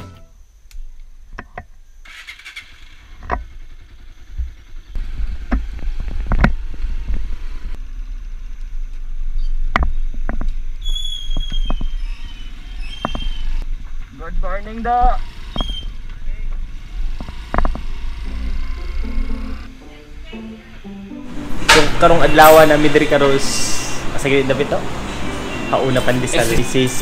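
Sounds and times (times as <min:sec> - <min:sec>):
motorcycle engine and wind rumble: 0:02.7 - 0:10.8
knocks and rattles over bumps: 0:03.1 - 0:07.7, 0:15.4 - 0:18.2
high squeal falling in pitch: 0:10.8 - 0:13.6.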